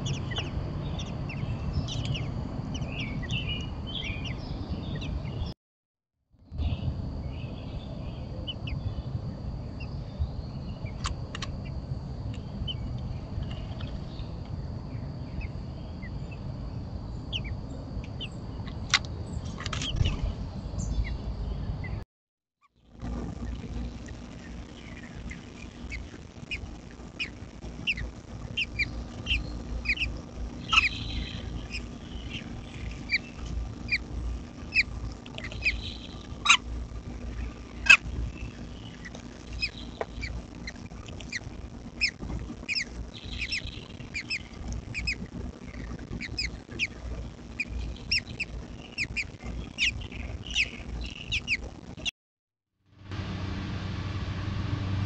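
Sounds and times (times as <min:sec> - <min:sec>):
nestlings' high begging chirps: 0:24.5 - 0:36.7, 0:37.3 - 0:45.2, 0:47.6 - 0:52.1.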